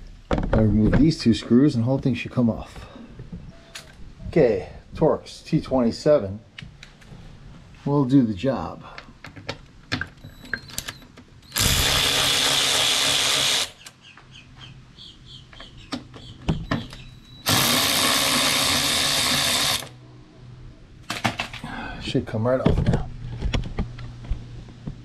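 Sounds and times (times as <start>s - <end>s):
power drill backing out screws: 10.2s - 13.9s, 16.7s - 19.9s.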